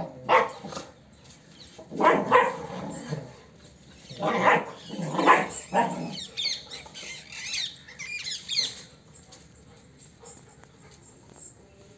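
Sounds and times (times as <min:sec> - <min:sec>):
dog barking: 0:00.2 - 0:00.7, 0:01.9 - 0:02.7, 0:04.2 - 0:06.2.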